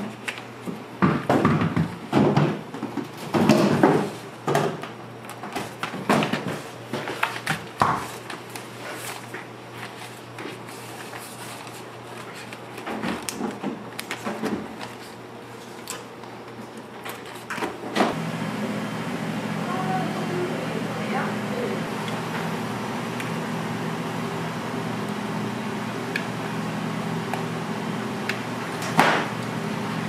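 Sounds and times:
kitchen items knocking and clattering: 1.0 - 4.9, 5.5 - 8.2
steady low hum: 17.9 - 30.0.

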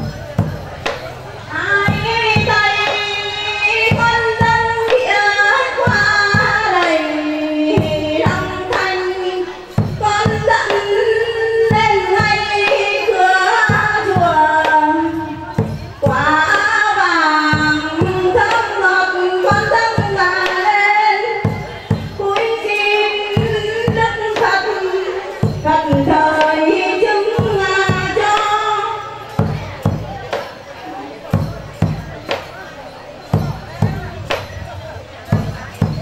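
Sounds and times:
percussion strikes: 0.0 - 36.0
woman singing slow melody: 1.5 - 29.4.

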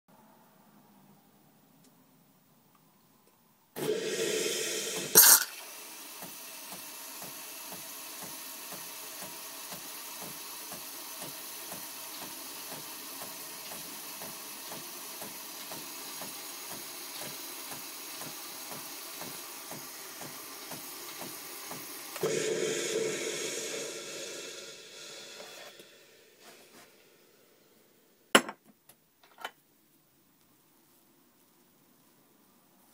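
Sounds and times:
milk frother running: 3.8 - 27.0
hiss: 3.8 - 28.3.

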